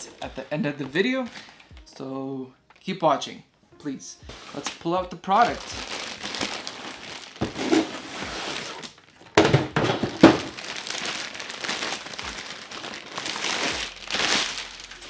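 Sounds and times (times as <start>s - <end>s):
plastic bag crinkling: 0.0s - 1.9s, 5.3s - 15.0s.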